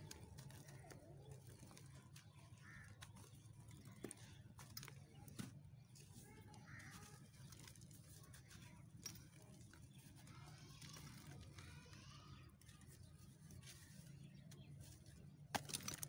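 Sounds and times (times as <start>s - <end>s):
cement crumbling by hand: 15.4s - 16.0s.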